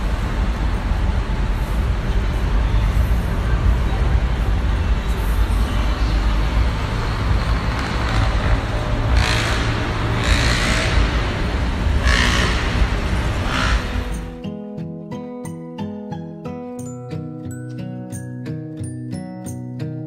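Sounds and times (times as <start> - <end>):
street traffic: 0.0 - 15.6
light chiming music: 14.1 - 20.0.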